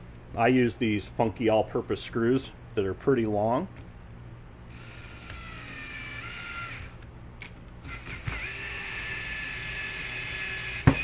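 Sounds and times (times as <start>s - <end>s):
cordless drill motor whining: 4.7s - 7.1s, 7.8s - 11.0s.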